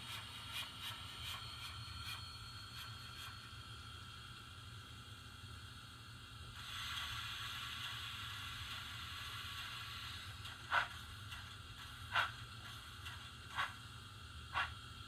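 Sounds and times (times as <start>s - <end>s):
steam hiss from speaker: 0.0s - 3.8s, 6.5s - 14.8s
steam chuffs: 6.6s - 14.8s.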